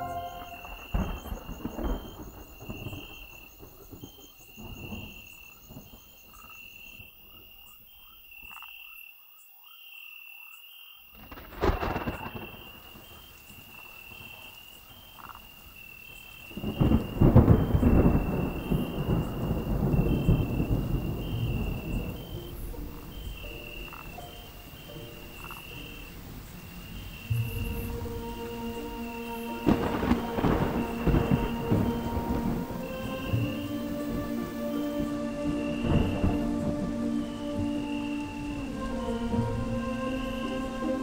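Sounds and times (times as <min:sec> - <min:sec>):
sharp thunderclap: 0:00.0 - 0:06.5, 0:11.2 - 0:14.5, 0:16.4 - 0:24.1, 0:29.2 - 0:37.0
rolling rumble of thunder: 0:00.0 - 0:07.4, 0:11.2 - 0:41.0
rain falling: 0:00.0 - 0:08.4, 0:11.1 - 0:41.0
tree frogs calling: 0:00.0 - 0:41.0.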